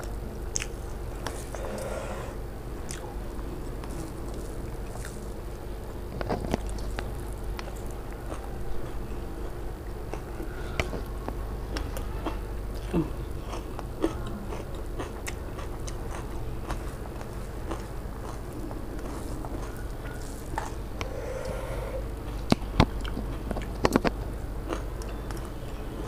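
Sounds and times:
chewing with wet smacks: 0.0s - 2.1s, 2.8s - 26.0s
steady low hum: 0.0s - 26.0s
fingers mixing food on steel plate: 15.6s - 24.1s.

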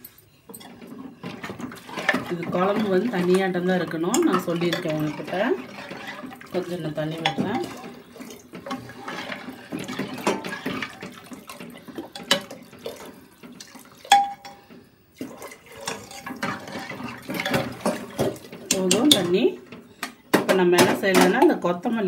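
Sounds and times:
ladle stirring and knocking metal: 0.0s - 21.7s
water pouring into pot: 1.2s - 14.6s, 15.2s - 18.8s.

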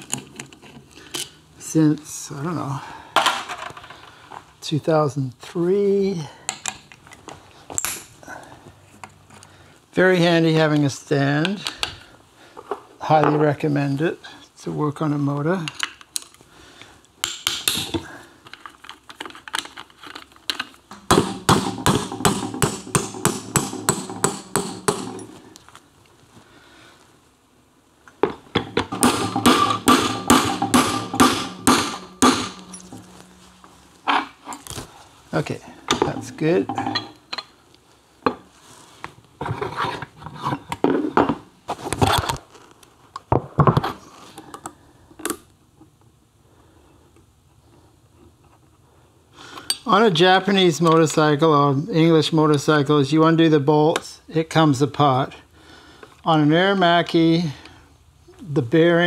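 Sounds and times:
hammer tapping metal punch: 20.9s - 25.4s, 28.2s - 33.3s
hand tools clinking: 20.9s - 25.5s, 28.2s - 34.8s, 35.9s - 37.5s
metal scraping and knocking: 20.9s - 25.5s, 28.2s - 34.7s, 35.9s - 37.5s.

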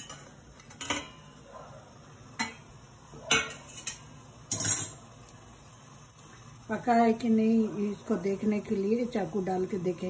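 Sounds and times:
metal lid clinking on pot: 0.0s - 1.2s, 3.3s - 5.0s.

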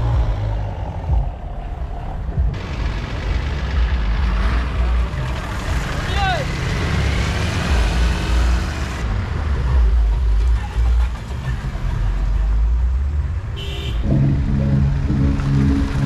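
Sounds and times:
vehicle engines rumbling: 0.0s - 16.0s
pulsing pitched tone: 14.0s - 16.0s.

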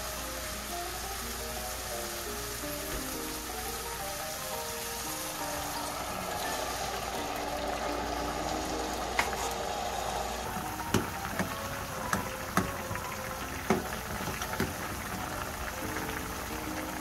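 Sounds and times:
liquid bubbling and sizzling in pan: 0.0s - 17.0s
wooden spoon knocking against pan: 10.6s - 13.0s, 13.6s - 14.9s.

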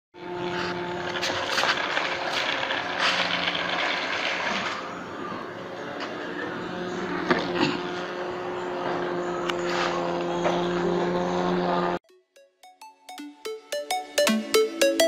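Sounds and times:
small motor whirring: 0.2s - 12.0s
wheels rattling on concrete: 1.0s - 5.0s.

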